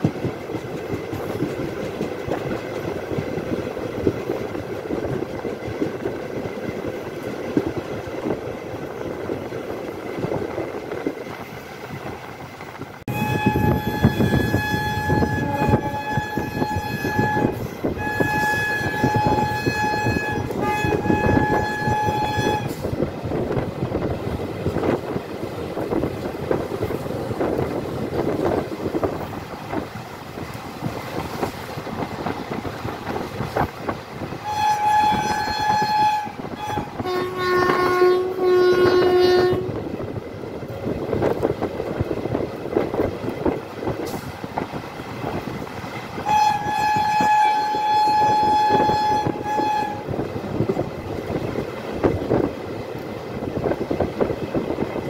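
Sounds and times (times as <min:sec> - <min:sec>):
train rumble and clatter: 0:00.0 - 0:55.0
high-pitched train horn: 0:13.1 - 0:22.9, 0:34.4 - 0:39.8, 0:46.2 - 0:50.3
lower-pitched horn blasts: 0:13.1 - 0:22.9, 0:34.4 - 0:39.8, 0:46.2 - 0:50.3.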